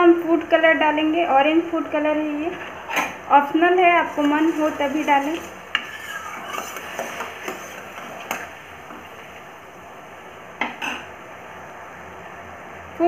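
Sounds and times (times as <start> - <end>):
syrup bubbling hiss: 4.0 - 10.3
spoon clinking and scraping pan: 4.1 - 9.1.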